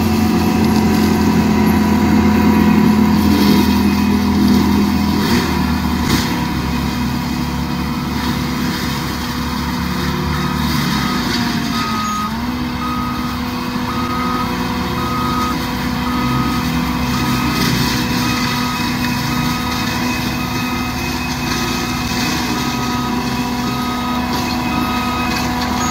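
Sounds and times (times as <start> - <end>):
track loader engine running: 0.0 - 25.9
backup alarm beeping: 10.5 - 21.2, 22.6 - 25.9.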